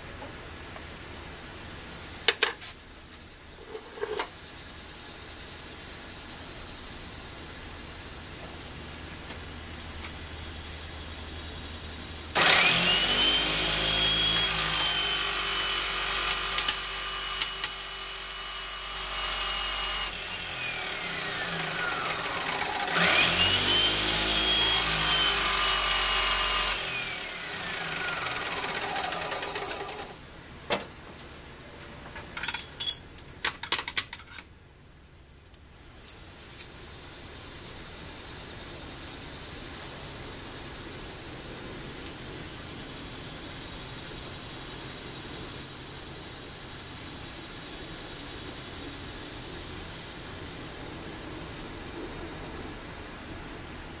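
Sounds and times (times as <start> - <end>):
hydraulic pump motor whine: 12.4 - 30.2
sharp clicks and rattles: 32.4 - 34.5.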